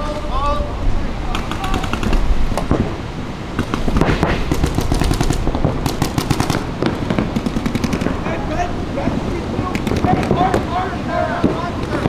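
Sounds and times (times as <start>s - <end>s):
paintball markers firing: 1.3s - 2.3s, 3.6s - 6.6s, 7.2s - 8.2s, 9.8s - 10.4s.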